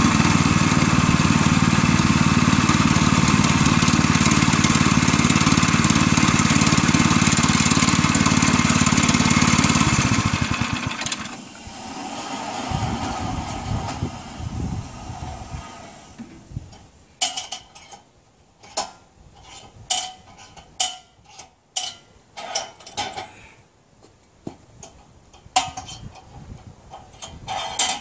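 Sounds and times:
small gas engine running: 0.0 - 16.2.

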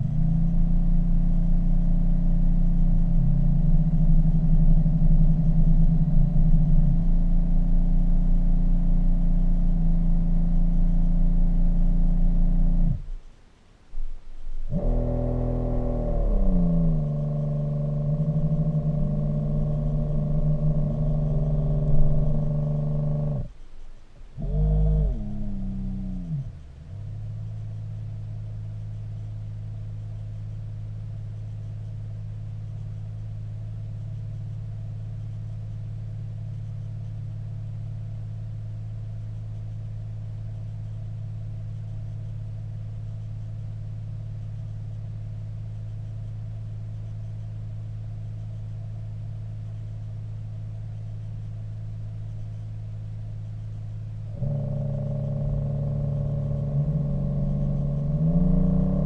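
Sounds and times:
steady low hum: 0.0 - 59.0
thruster motor whine: 14.7 - 23.5, 54.3 - 59.0.

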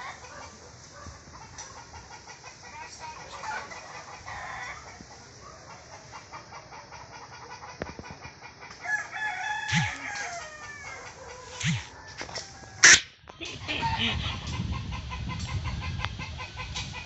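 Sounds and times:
bird calling: 9.7 - 11.9.

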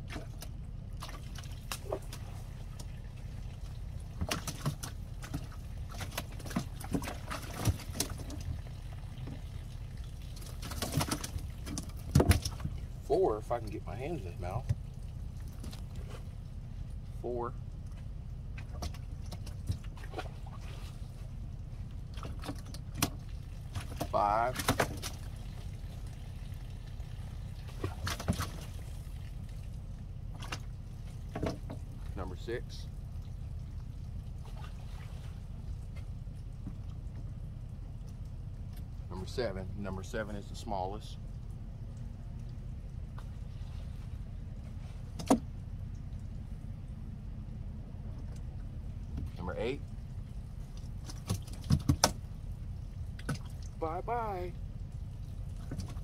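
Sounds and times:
fish splashing in water: 0.0 - 13.0, 18.5 - 32.0, 50.0 - 53.8
steady low rumble: 0.0 - 56.0.

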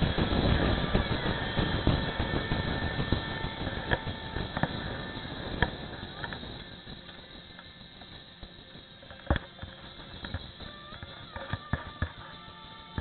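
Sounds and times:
wind rush: 0.0 - 7.5
motorcycle engine running: 0.0 - 13.0.

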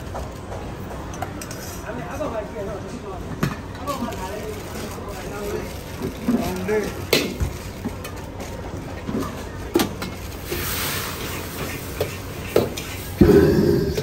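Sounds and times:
liquid sizzling in hot pan: 10.4 - 12.0.

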